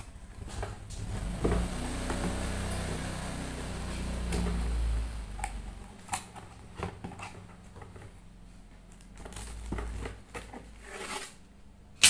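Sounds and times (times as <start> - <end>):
plastic wrapping rustling: 8.9 - 11.4.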